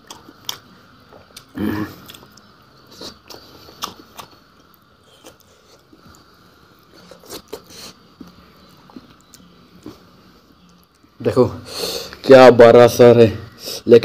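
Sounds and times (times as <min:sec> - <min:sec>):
person chewing and crunching: 0:00.0 - 0:09.5.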